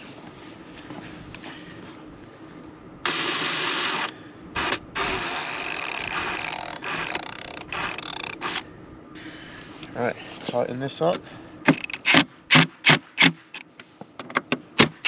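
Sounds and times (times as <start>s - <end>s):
cordless drill spinning in bursts: 3.1s - 8.6s.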